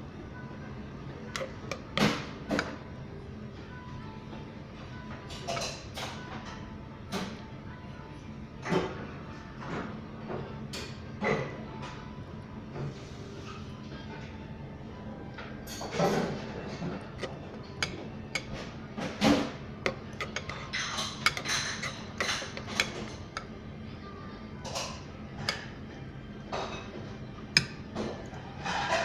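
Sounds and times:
low background hum: 0:00.0 - 0:29.0
spoon scraping ceramic bowl: 0:16.3 - 0:18.6, 0:19.8 - 0:23.5.

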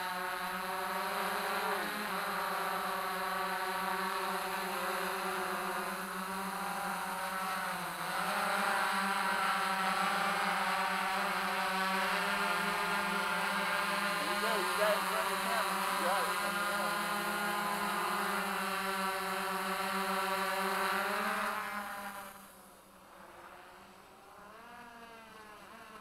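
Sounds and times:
drone rotors buzzing hum: 0:00.0 - 0:26.0.

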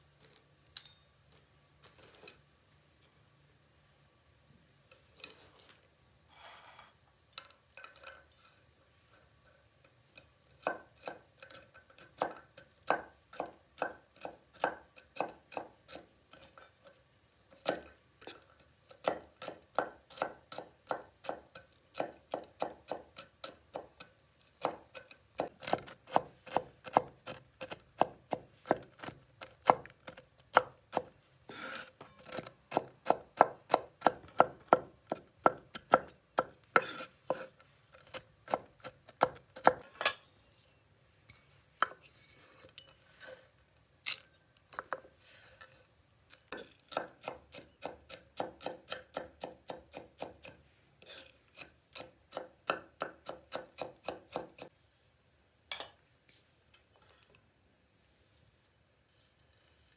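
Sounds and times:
knife chopping on wooden board: 0:12.1 - 0:15.8, 0:19.0 - 0:31.2, 0:46.9 - 0:50.6, 0:51.6 - 0:54.7.

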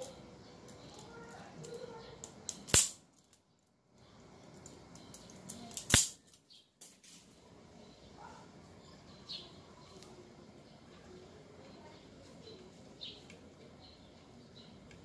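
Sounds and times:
wire strippers snapping: 0:01.6 - 0:03.4, 0:04.6 - 0:07.0.

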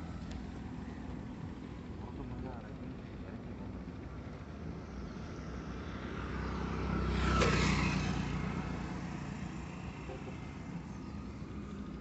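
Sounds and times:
vehicle passing close by: 0:05.7 - 0:10.9.

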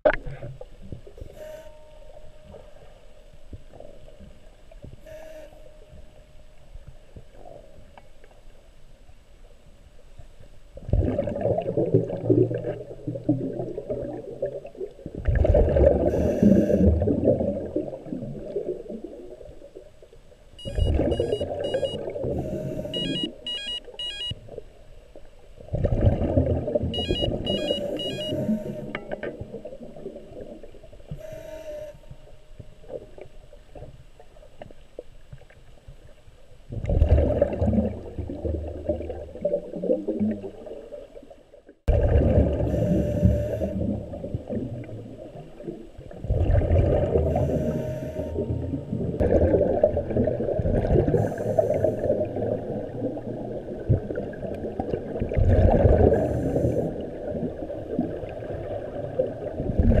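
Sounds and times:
underwater churning and bubbling: 0:00.0 - 1:00.0
hissy bursts of bubbles: 0:49.2 - 0:52.5, 0:55.4 - 0:57.4.

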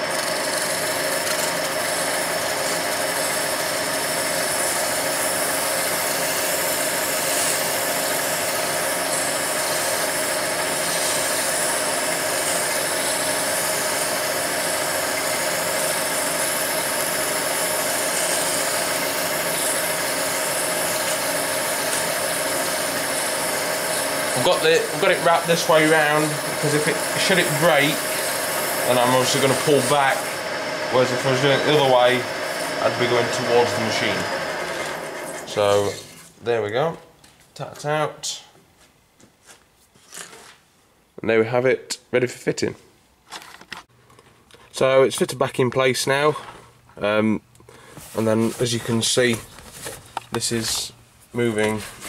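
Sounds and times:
lathe whining: 0:00.0 - 0:36.3.

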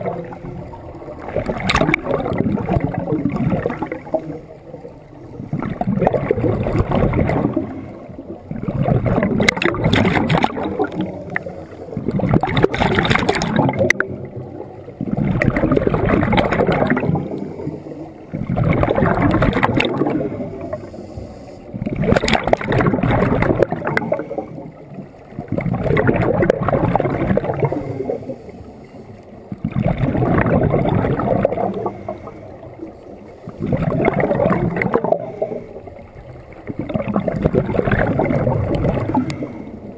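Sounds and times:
bubbly regulator exhalations: 0:01.2 - 0:04.5, 0:05.3 - 0:20.9, 0:21.7 - 0:24.7, 0:25.4 - 0:28.4, 0:29.5 - 0:32.5, 0:33.5 - 0:35.7, 0:36.6 - 0:39.9
high hiss on inhale: 0:20.6 - 0:21.9.

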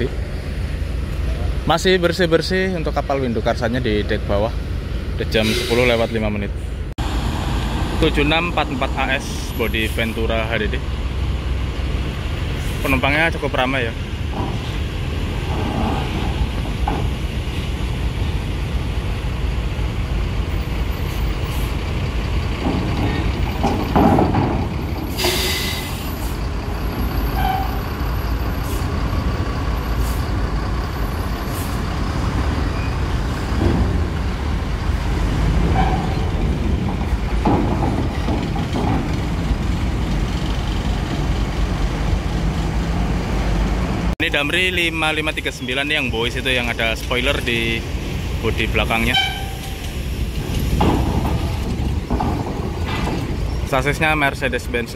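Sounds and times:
bus diesel engine running: 0:00.0 - 0:54.9
air-brake hiss: 0:05.4 - 0:06.1, 0:25.1 - 0:26.4, 0:30.0 - 0:30.4, 0:31.4 - 0:31.8
knocks on steel ramp: 0:14.2 - 0:17.4, 0:22.5 - 0:25.4, 0:35.7 - 0:40.0, 0:50.4 - 0:53.7.

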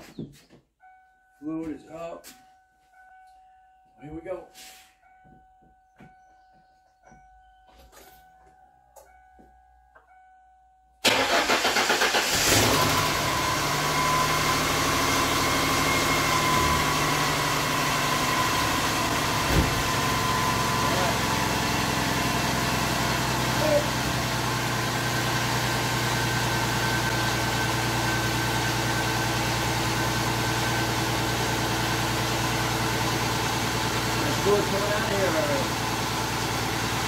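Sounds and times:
car engine cranking and idling: 0:11.0 - 0:37.0.

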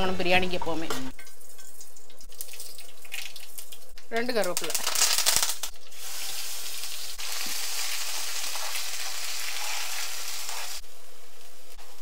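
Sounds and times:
leaves sizzling in hot pan: 0:04.6 - 0:12.0.

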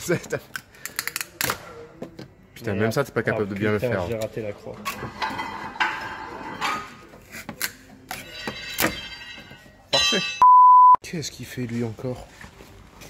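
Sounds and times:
electronic beep tone: 0:10.4 - 0:11.0.

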